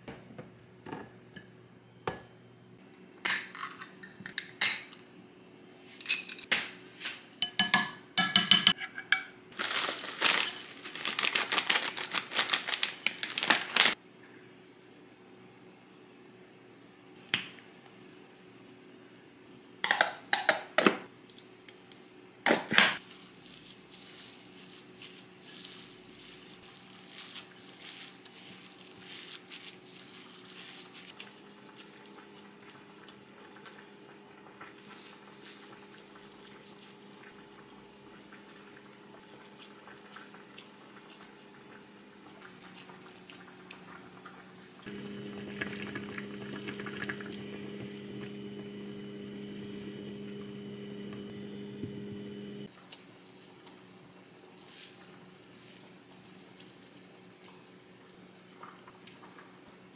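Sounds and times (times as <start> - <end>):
steady low hum: 44.9 - 52.7.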